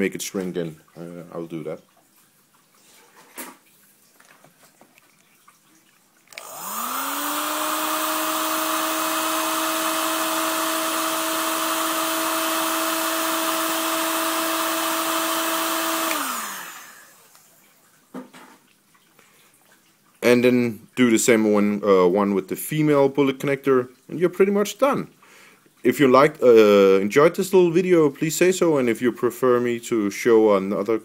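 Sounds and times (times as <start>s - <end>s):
heat gun fan whine: 6.3s - 17.5s.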